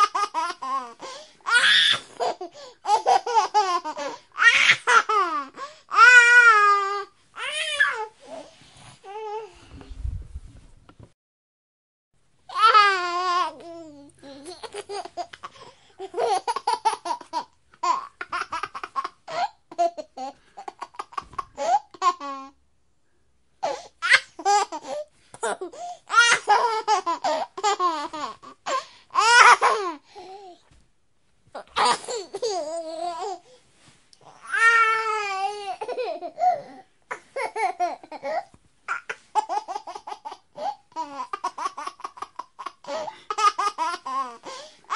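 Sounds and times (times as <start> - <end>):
baby laughing and babbling: 12.5 - 22.6, 23.6 - 30.6, 31.6 - 33.5, 34.2 - 44.9.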